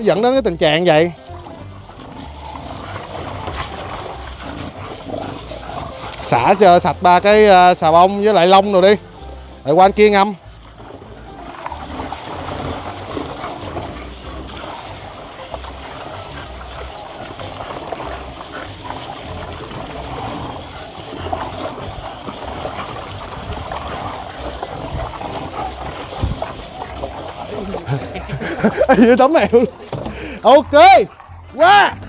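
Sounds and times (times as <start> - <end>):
hose water pouring into tub: 0.0 - 30.5.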